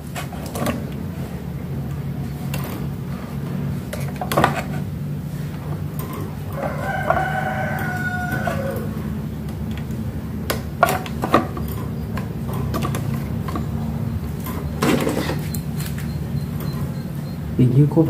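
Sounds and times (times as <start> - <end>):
steady low hum: 0.0 - 18.0
rooster crowing: 6.2 - 9.4.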